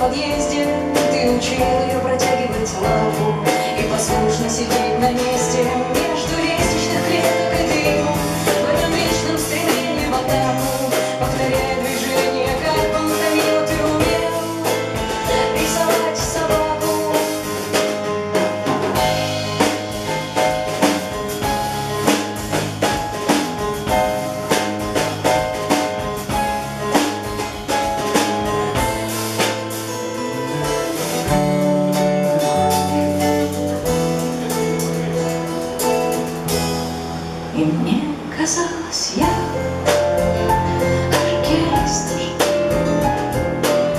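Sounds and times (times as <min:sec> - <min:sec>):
woman singing: 0:00.0 - 0:18.0, 0:37.6 - 0:42.8
live band playing: 0:00.0 - 0:43.9.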